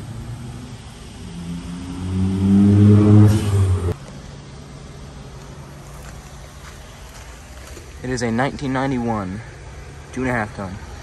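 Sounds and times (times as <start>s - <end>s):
vehicle engine accelerating past: 0.0s - 4.0s.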